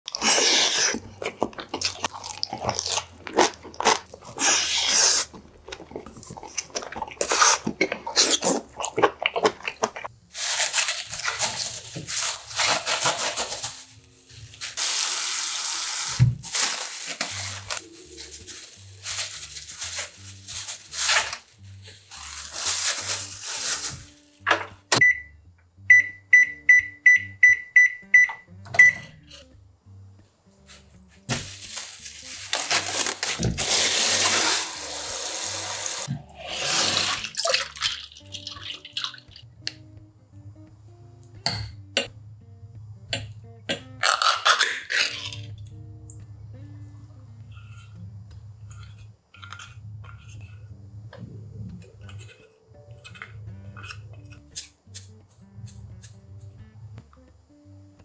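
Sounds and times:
crunchy chewing: 0.1s - 12.8s, 47.4s - 50.8s, 51.7s - 56.6s
microwave keypad beeps: 25.0s - 29.1s.

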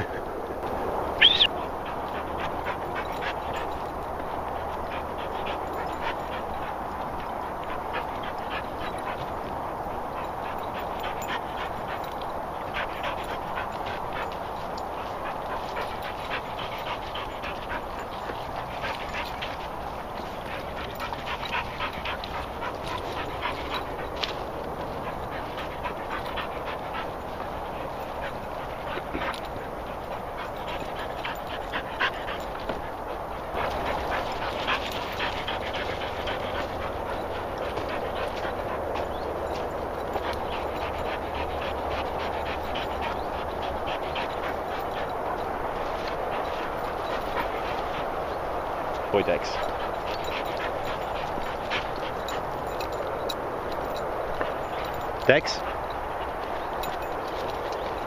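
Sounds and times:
dogs panting: 0.0s - 58.0s
high rising squeal: 1.2s - 1.6s.

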